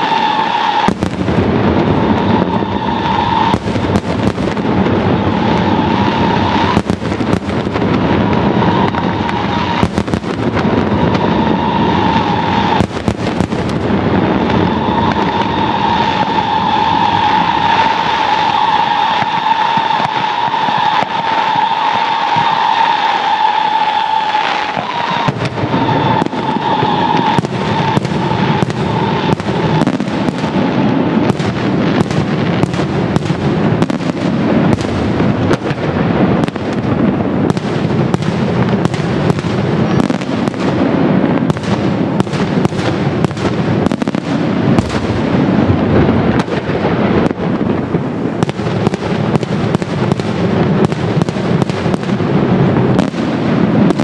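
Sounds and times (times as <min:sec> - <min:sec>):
high whistling tone: 0:00.0 - 0:01.0, 0:02.0 - 0:03.6, 0:05.2 - 0:06.8, 0:08.2 - 0:09.9, 0:10.9 - 0:12.9, 0:14.4 - 0:30.7
fireworks bangs: 0:00.0 - 0:54.0.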